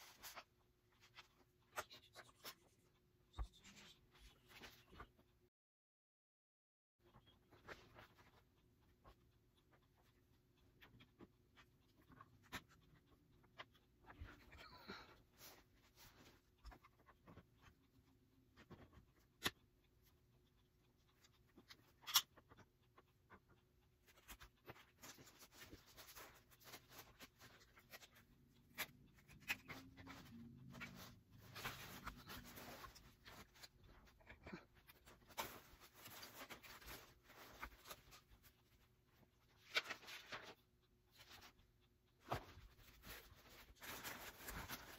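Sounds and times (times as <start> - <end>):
paper and fabric rustling: 24.1 - 41.6, 42.2 - 44.9.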